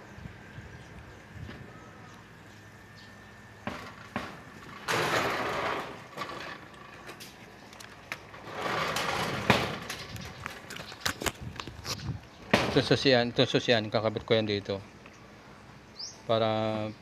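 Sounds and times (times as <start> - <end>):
sliding door rolling on track: 3.7 - 7.3, 8.2 - 10.4.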